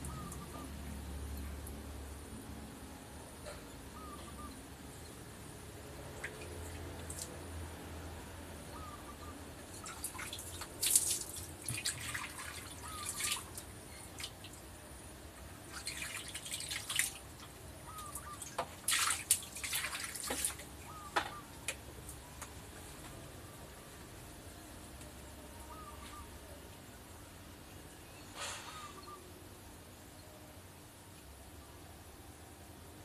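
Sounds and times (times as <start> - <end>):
faint short chirps: 28.2 - 29.3.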